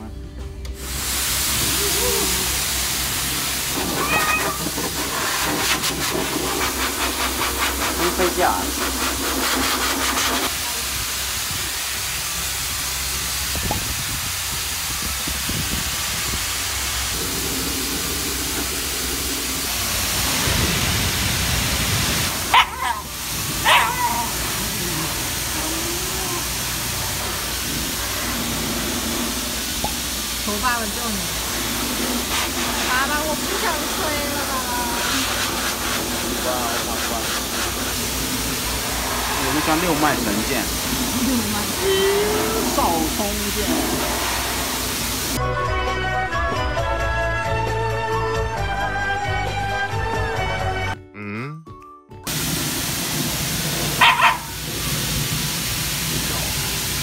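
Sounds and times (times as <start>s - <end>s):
pet dryer blowing air: 0.8s - 12.0s, 12.8s - 45.4s, 52.3s - 57.0s
dog whining: 3.8s - 4.9s, 22.5s - 26.5s, 41.7s - 42.9s.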